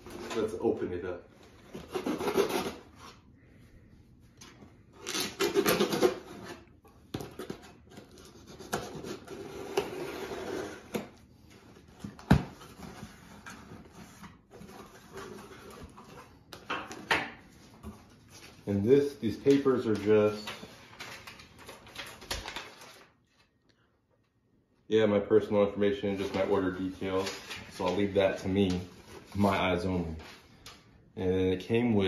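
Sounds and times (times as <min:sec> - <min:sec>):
cardboard scraping and rustling: 0:01.5 - 0:03.2
knife slitting packing tape: 0:01.9 - 0:02.8, 0:05.0 - 0:06.5.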